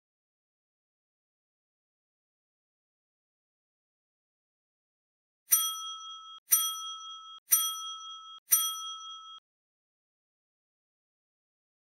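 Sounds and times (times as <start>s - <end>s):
bell-like ding: 5.5s - 9.4s.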